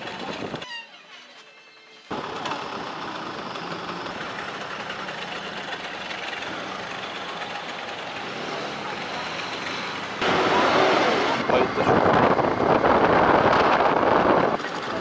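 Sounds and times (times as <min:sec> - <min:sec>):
moped two-stroke engine running: 0:02.1 - 0:11.4.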